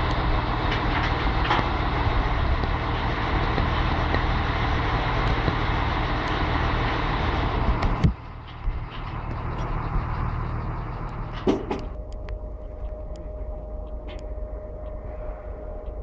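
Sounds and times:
engine knocks: 0.0 - 13.2
diesel engine idling: 0.0 - 16.0
steady hum: 10.8 - 16.0.

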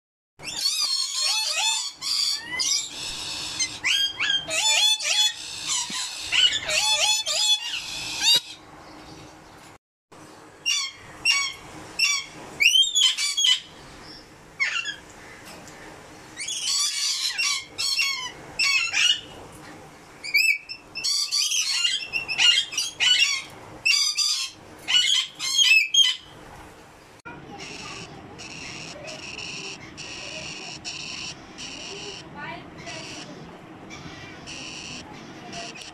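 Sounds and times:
lorikeets screeching: 0.4 - 8.6, 10.6 - 15.4, 16.4 - 19.3, 20.2 - 26.3, 27.5 - 35.9.

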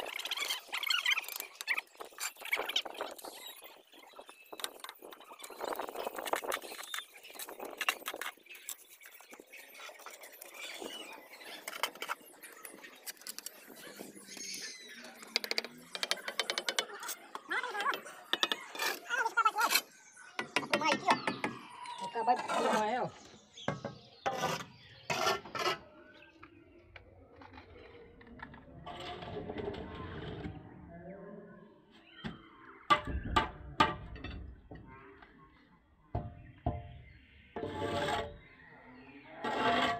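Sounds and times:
trowel scraping mortar on bricks: 24.0 - 25.8, 37.6 - 38.4, 39.4 - 39.9
trowel scraping wet mortar: 39.4 - 39.9.

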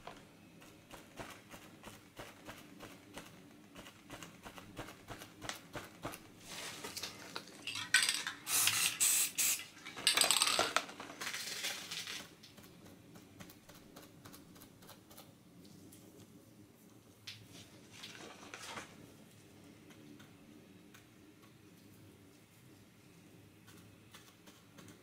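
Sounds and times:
spray paint can hissing: 8.4 - 9.7.

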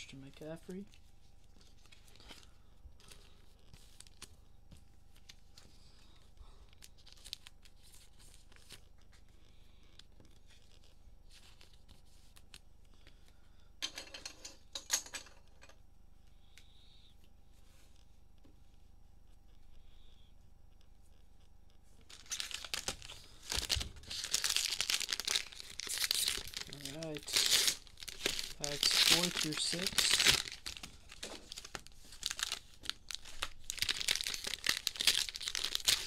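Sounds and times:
cards and wrappers rustling: 0.1 - 9.4, 10.0 - 13.2, 22.0 - 36.0
plastic wrapper ripping: 22.1 - 36.0.

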